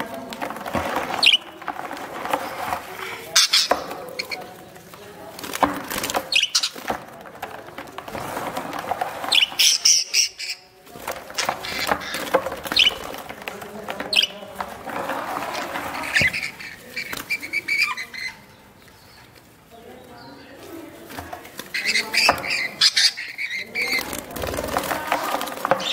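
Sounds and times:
handling noise: 0.0 - 25.9
rustling in plastic tub: 0.0 - 25.9
budgerigars chirping and squawking: 1.2 - 1.4, 3.0 - 4.5, 6.0 - 6.9, 9.2 - 10.7, 11.4 - 13.2, 15.5 - 19.3, 21.6 - 24.2.

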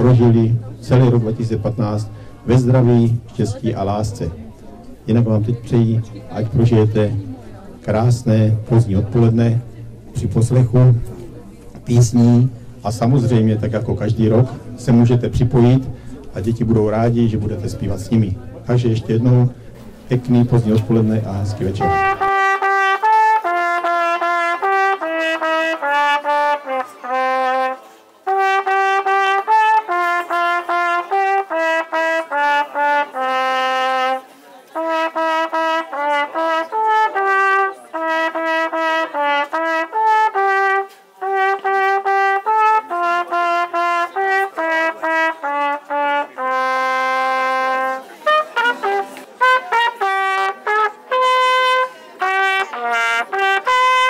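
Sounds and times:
solo trumpet melody: 19.8 - 54.0.

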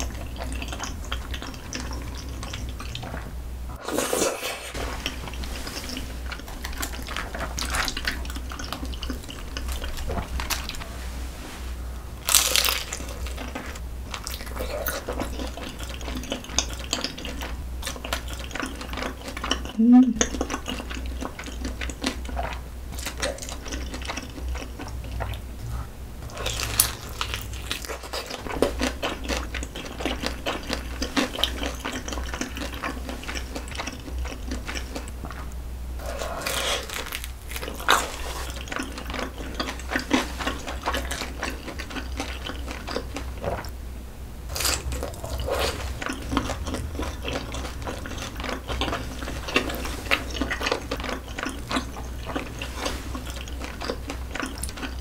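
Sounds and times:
wet chewing and lip smacks: 44.6 - 55.0.

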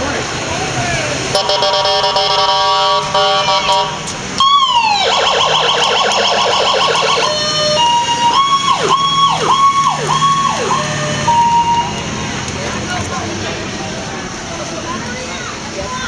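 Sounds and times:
electronic siren cycling tones: 1.4 - 12.1.

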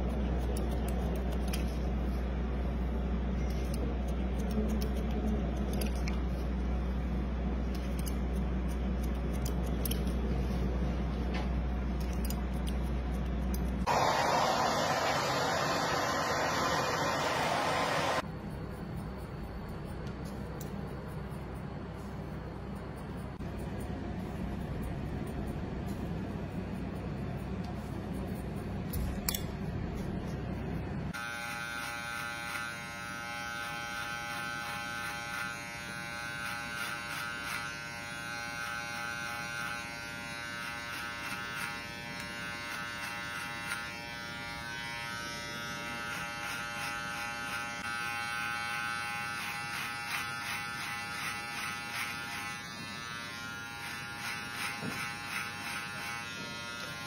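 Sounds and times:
scissors snipping hair: 0.0 - 2.0, 3.4 - 6.6, 7.6 - 10.3, 11.9 - 13.9, 19.0 - 21.6, 26.7 - 30.4, 33.6 - 37.7, 40.6 - 44.0, 46.0 - 47.8, 48.8 - 57.0
electric hair clipper buzzing: 31.2 - 57.0.

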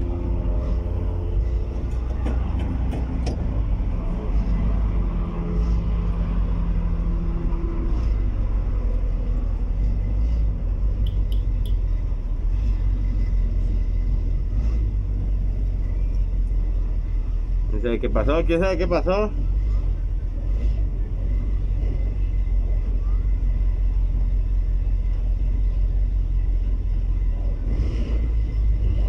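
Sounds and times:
car engine running: 0.0 - 29.0
road rumble: 0.0 - 29.0.

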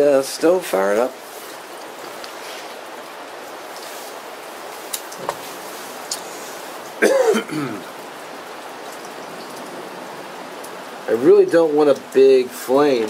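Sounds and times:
steady rain: 0.0 - 13.0
person coughing: 7.0 - 7.9.

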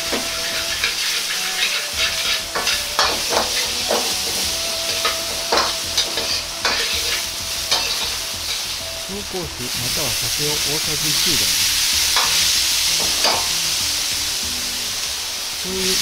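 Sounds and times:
metal ladle scraping a wok: 0.0 - 9.1, 11.5 - 13.8
vegetables sizzling in oil: 0.0 - 16.0.

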